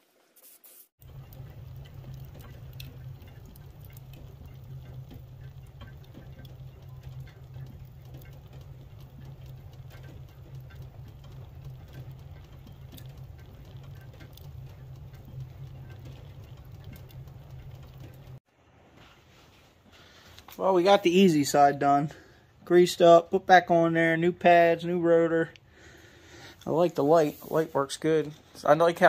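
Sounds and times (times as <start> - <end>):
steady low hum: 1.0 - 18.4
wood fire crackling and popping: 1.0 - 18.4, 25.4 - 29.0.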